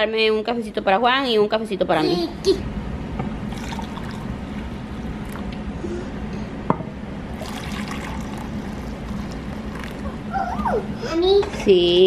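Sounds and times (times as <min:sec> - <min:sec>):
low steady hum: 0:00.0 - 0:12.0
coffee pouring into cup: 0:03.5 - 0:05.4, 0:07.3 - 0:10.2.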